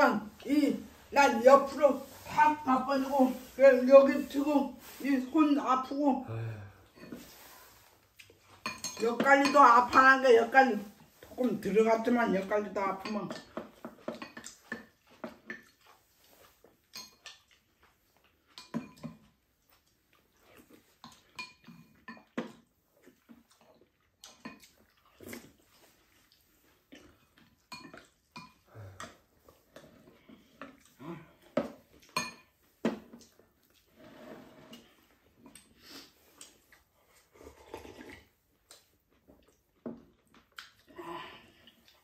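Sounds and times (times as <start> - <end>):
chopsticks clinking ceramic bowls: 8.5 - 10.2.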